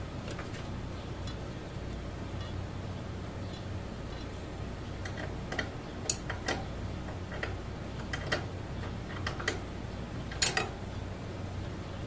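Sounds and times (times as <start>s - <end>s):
metal nuts and bolts clinking: 10.3s - 10.7s.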